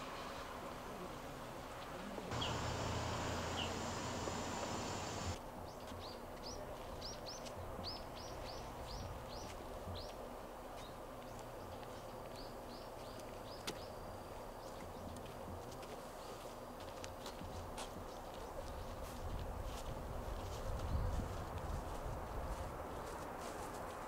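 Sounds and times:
low hum with hiss: 0:00.2 - 0:05.7
small bird chirping: 0:02.3 - 0:05.4.

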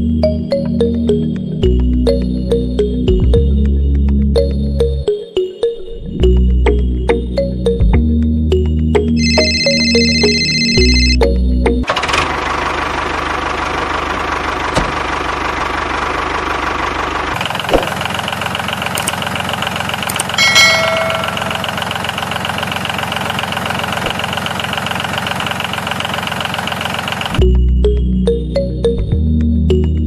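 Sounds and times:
short high tone: 0:09.2 - 0:11.2
diesel tractor engine idling: 0:11.9 - 0:27.6.

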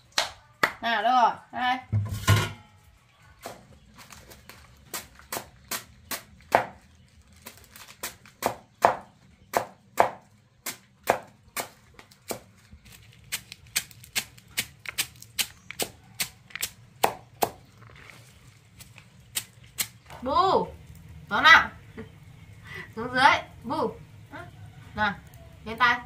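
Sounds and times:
knife chopping leafy greens: 0:03.4 - 0:17.8, 0:18.7 - 0:20.2.

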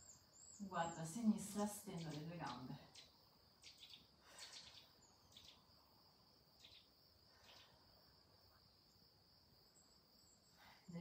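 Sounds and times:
insect trill: 0:00.0 - 0:11.0.

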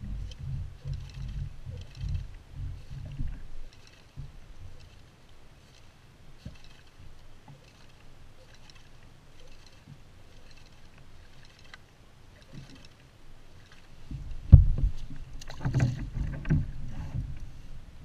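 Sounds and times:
wind buffeting microphone: 0:00.0 - 0:05.0, 0:13.9 - 0:18.0
waves lapping against kayak hull: 0:00.0 - 0:18.0.

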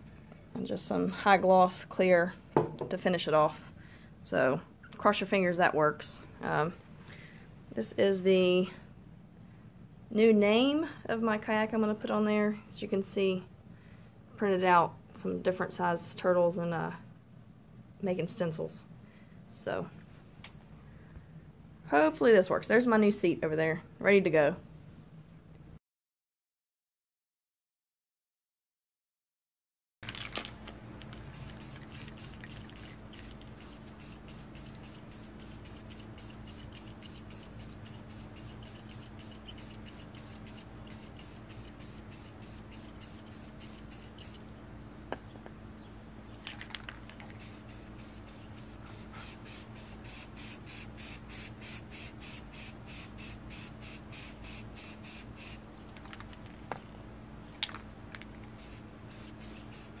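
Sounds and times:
insects chirping: 0:30.2 - 1:00.0.

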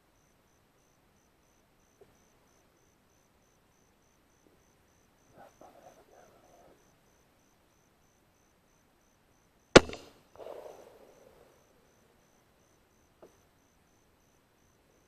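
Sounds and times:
rifle shot: 0:09.8 - 0:10.8.

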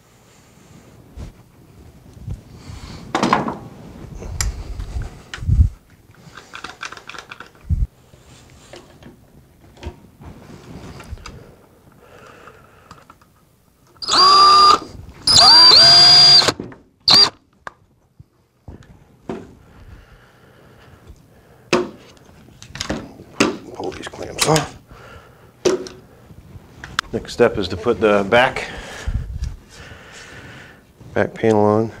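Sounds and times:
knocks and handling noise: 0:03.1 - 0:03.8, 0:04.4 - 0:11.4, 0:16.5 - 0:19.6, 0:21.0 - 0:24.7
cordless drill whine: 0:14.0 - 0:17.4.

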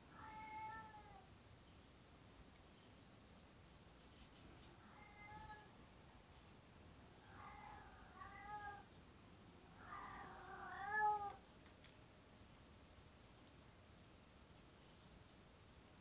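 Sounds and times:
cat meowing: 0:00.2 - 0:01.2, 0:04.8 - 0:05.7, 0:07.3 - 0:08.9, 0:09.8 - 0:11.4.

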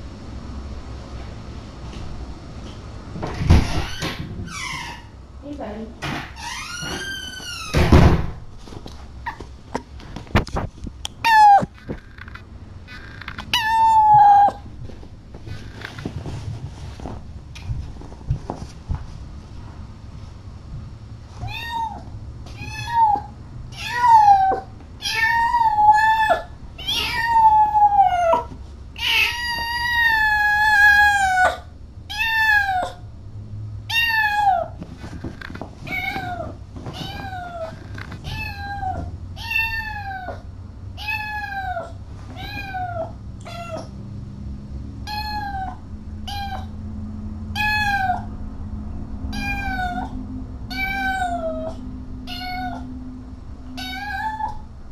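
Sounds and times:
cat meowing: 0:11.2 - 0:11.8, 0:13.5 - 0:14.6, 0:21.4 - 0:33.0, 0:33.9 - 0:34.8, 0:35.9 - 0:40.4, 0:41.0 - 0:43.9, 0:45.1 - 0:46.7, 0:47.6 - 0:48.3, 0:49.3 - 0:52.9, 0:53.8 - 0:54.6.

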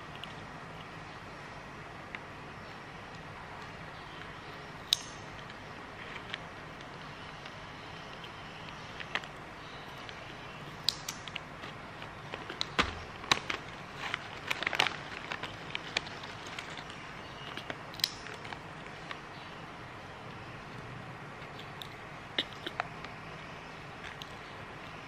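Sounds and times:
hands handling foil snack packet: 0:12.0 - 0:19.2.

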